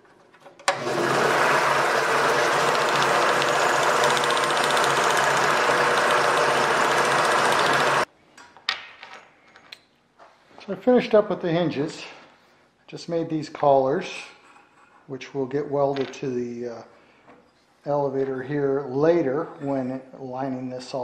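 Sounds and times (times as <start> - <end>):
drill press sanding: 0.7 - 8.1.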